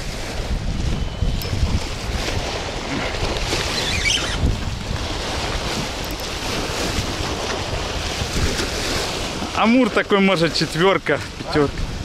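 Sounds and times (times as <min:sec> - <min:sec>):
waves splashing on concrete shore: 0:00.0 - 0:12.0
wind buffeting microphone: 0:00.0 - 0:12.0.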